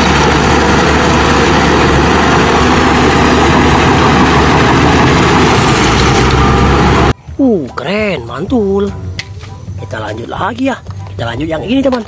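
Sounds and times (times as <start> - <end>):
bulldozer diesel engine rumbling: 0.0 - 7.3.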